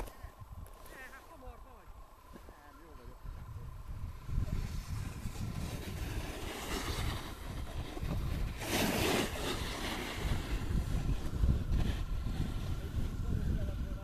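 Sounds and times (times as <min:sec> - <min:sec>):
wind buffeting microphone: 0:00.0 - 0:14.0
snowboard scraping slushy snow: 0:04.2 - 0:13.6.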